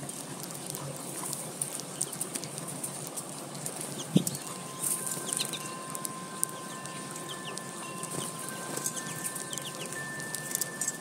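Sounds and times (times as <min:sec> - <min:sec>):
beaks tapping seed feeder: 0:00.5 - 0:11.0
faint steady tones: 0:03.8 - 0:11.0
bird chirps: 0:04.0 - 0:11.0.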